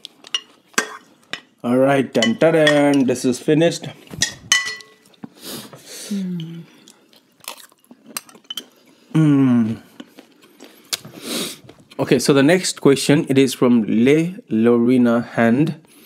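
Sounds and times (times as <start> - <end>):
soft eating sounds: 0.0 - 3.2, 3.8 - 12.2
spoons clinking against ceramic bowls: 0.3 - 1.5, 2.2 - 3.2, 4.2 - 5.1, 8.2 - 8.7.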